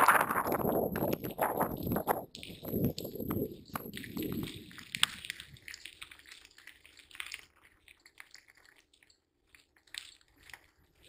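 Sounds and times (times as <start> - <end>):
bike rolling over dirt trail: 0.0 - 7.6.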